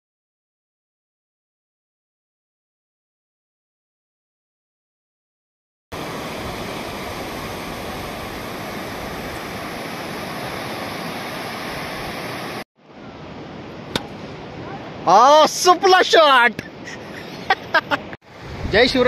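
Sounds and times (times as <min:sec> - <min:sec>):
waves breaking on beach: 0:05.9 - 0:19.0.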